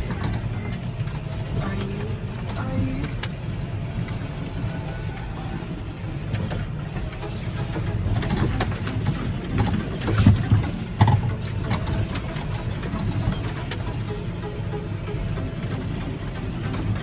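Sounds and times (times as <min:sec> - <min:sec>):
tractor engine droning: 0:00.0 - 0:17.0
knocks and rattles: 0:05.4 - 0:17.0.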